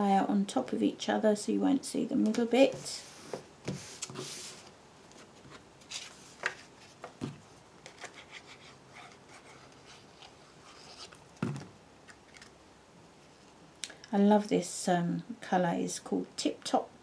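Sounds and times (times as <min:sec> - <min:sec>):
paper rustling: 0:03.2 - 0:11.2.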